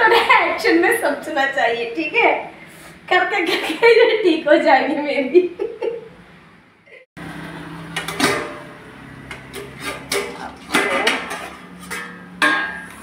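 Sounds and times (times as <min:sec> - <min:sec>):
metal pots clinking: 0:07.9 - 0:13.0.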